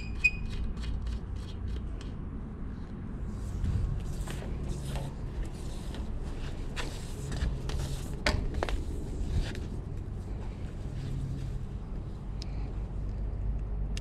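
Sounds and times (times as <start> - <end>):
low steady hum: 0.0 - 14.0
footsteps: 3.3 - 12.2.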